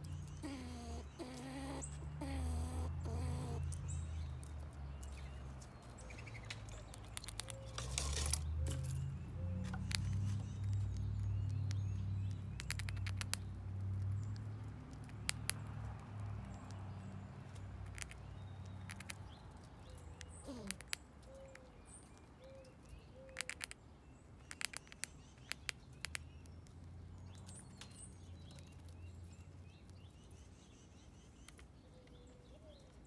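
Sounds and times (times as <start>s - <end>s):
bird calls: 0.0s - 13.5s, 17.9s - 23.8s
squirrel crunching corn: 0.0s - 30.6s.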